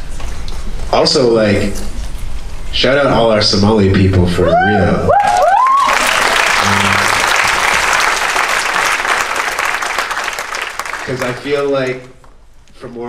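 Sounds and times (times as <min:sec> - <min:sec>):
audience applauding: 0:05.2 - 0:12.4
voice from the crowd: 0:06.6 - 0:07.2.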